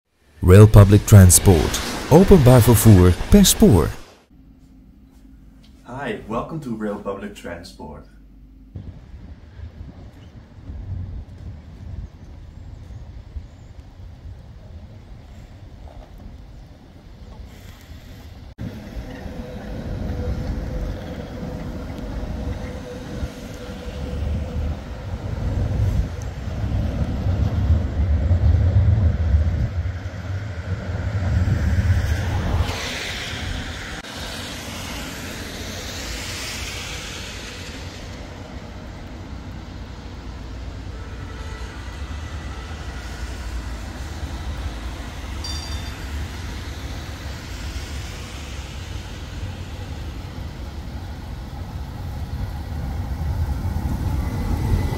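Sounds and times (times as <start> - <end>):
tram rumbling on rails: 18.6 - 54.9.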